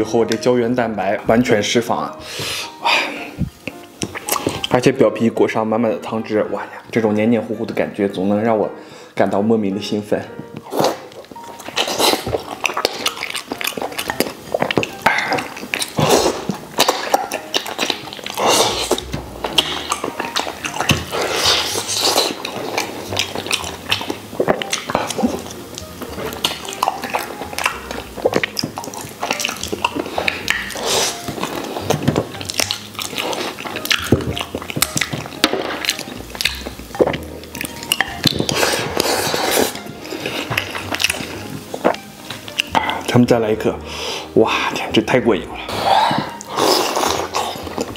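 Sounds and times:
wet chewing and lip-smacking: 0:03.4 - 0:04.8, 0:10.4 - 0:43.1, 0:45.7 - 0:47.9.

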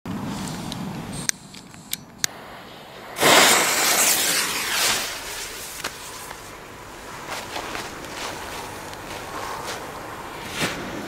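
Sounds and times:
torch lighter hissing: 0:01.1 - 0:06.6.

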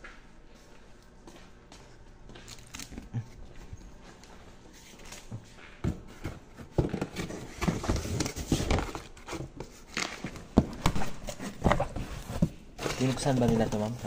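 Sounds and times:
cardboard boxes being opened: 0:05.9 - 0:14.0
plastic packaging rustling: 0:06.4 - 0:14.0.

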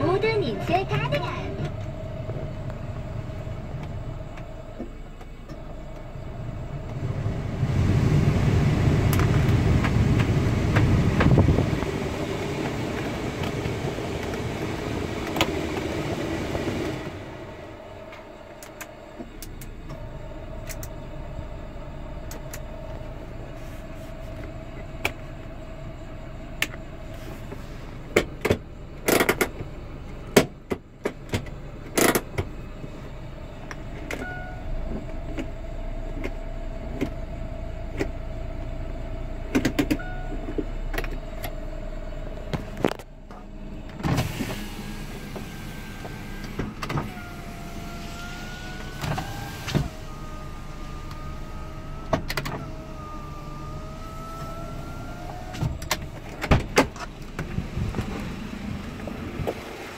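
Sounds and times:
car engine idle hum: 0:00.0 - 0:59.9
heater blower rushing air: 0:06.7 - 0:18.8, 0:44.0 - 0:59.9
handbrake lever clicks: 0:20.6 - 0:21.0.

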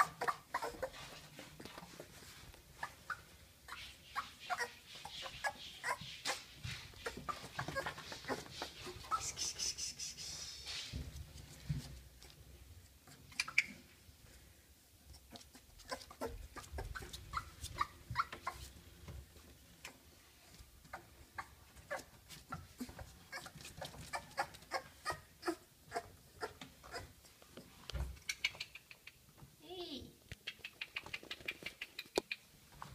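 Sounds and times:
puppies squeaking and whimpering: 0:00.0 - 0:01.2, 0:02.8 - 0:09.7, 0:13.1 - 0:13.9, 0:15.8 - 0:18.7, 0:20.9 - 0:27.4.

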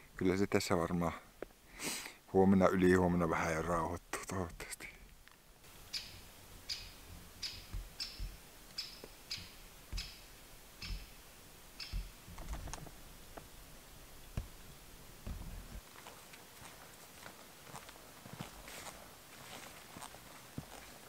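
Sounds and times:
footsteps with sharp clicks: 0:06.0 - 0:11.2, 0:11.8 - 0:13.5, 0:15.2 - 0:21.0.

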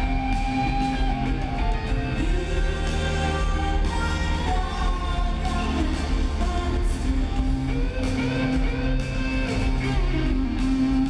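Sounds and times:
bass line: 0:00.0 - 0:11.0
electric guitar: 0:00.0 - 0:11.0
person singing: 0:00.0 - 0:11.0.

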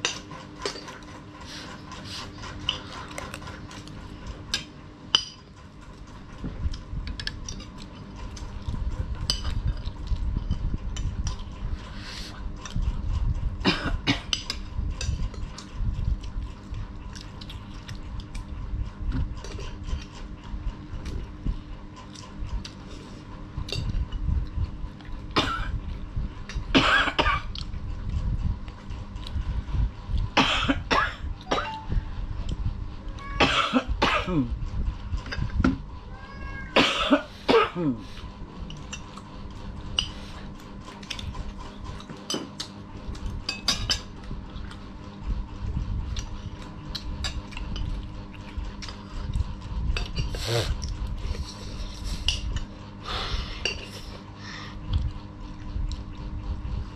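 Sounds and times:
chewing and mouth sounds: 0:00.1 - 0:04.7, 0:05.5 - 0:13.4, 0:14.4 - 0:26.7, 0:27.4 - 0:30.4, 0:38.0 - 0:43.5, 0:44.1 - 0:53.0, 0:53.7 - 0:56.8.

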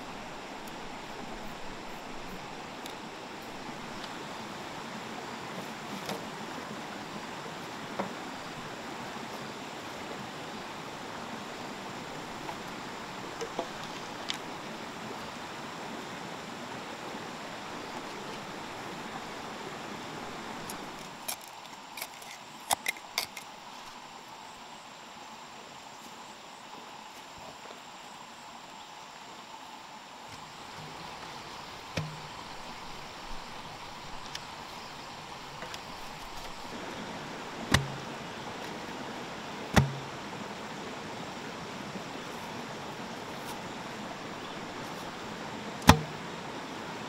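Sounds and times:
stream water flowing: 0:00.0 - 0:47.0
bamboo poles knocking: 0:32.0 - 0:32.4, 0:37.7 - 0:38.1, 0:39.7 - 0:40.2, 0:45.8 - 0:46.2.

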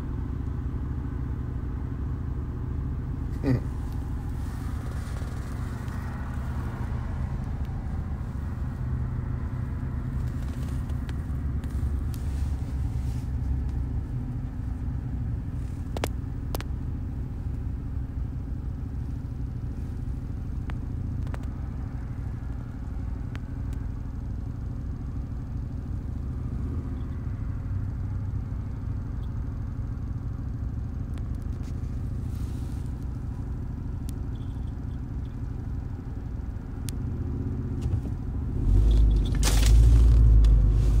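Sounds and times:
car road rumble: 0:00.0 - 0:41.0
loud rustle: 0:38.8 - 0:41.0.

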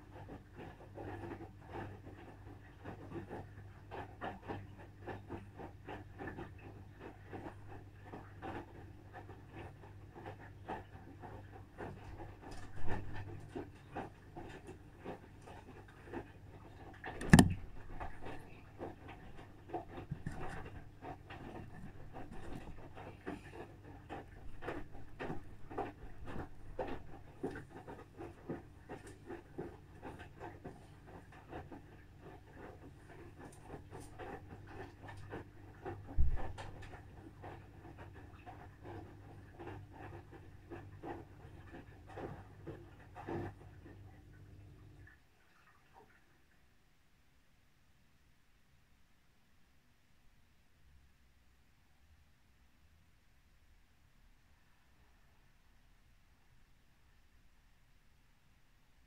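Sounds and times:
washing machine motor hum: 0:00.0 - 0:45.1
sharp knock: 0:17.2 - 0:17.6.

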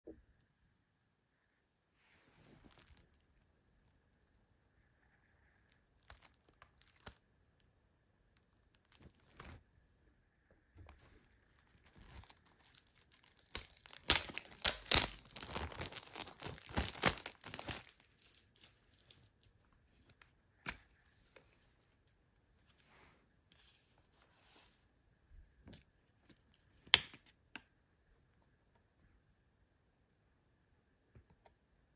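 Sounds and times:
plastic wrap crinkling: 0:02.4 - 0:03.5, 0:05.7 - 0:07.2, 0:08.4 - 0:09.6, 0:11.0 - 0:19.6.

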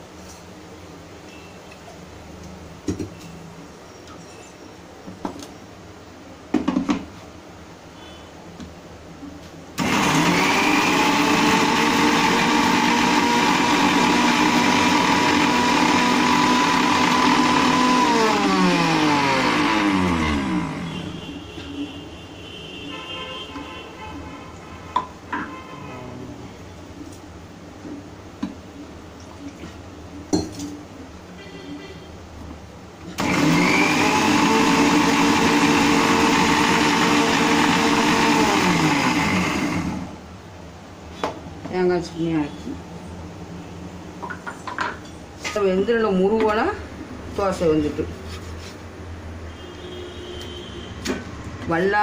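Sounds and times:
mixer grinder motor whining: 0:09.8 - 0:21.2, 0:33.2 - 0:40.2.

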